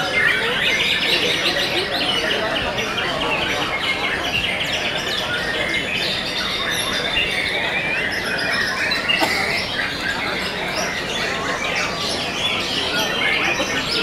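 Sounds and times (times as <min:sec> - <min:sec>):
many birds singing: 0:00.0 - 0:14.0.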